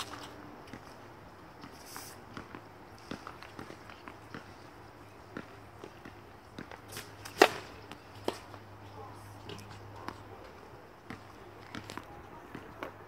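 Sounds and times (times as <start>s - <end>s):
tennis racket striking ball: 6.6s - 8.5s.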